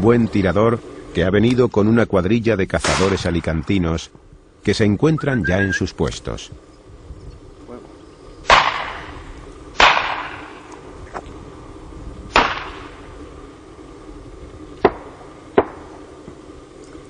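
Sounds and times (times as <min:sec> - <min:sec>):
shotgun shots echoing: 0:02.8 - 0:03.8, 0:08.5 - 0:09.1, 0:09.8 - 0:10.6, 0:12.3 - 0:12.9.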